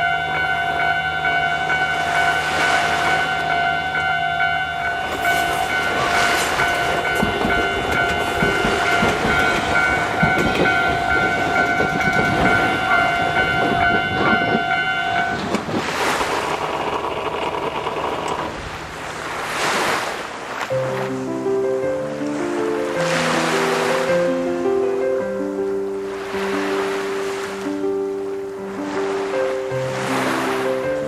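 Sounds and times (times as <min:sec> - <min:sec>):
level-crossing warning bell: 0:00.0 - 0:18.5
train wheels clacking: 0:00.0 - 0:18.8
rushing noise: 0:00.0 - 0:20.3.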